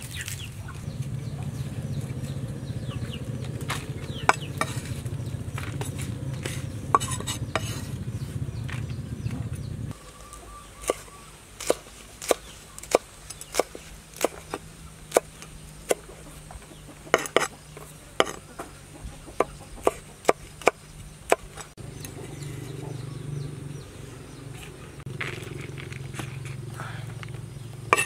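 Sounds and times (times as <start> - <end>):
cleaver chopping on wooden block: 3.6 - 5.0, 17.1 - 17.5.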